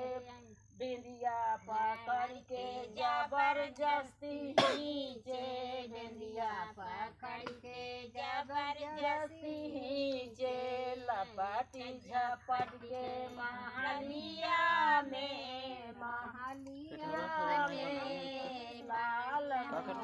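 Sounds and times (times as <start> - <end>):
women singing without instruments: 0.0 - 20.0
person coughing: 4.6 - 4.8.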